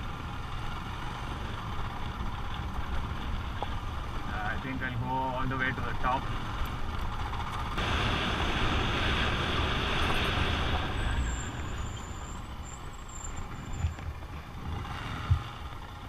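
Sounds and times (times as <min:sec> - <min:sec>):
wind rush on microphone: 0:07.8 - 0:12.0.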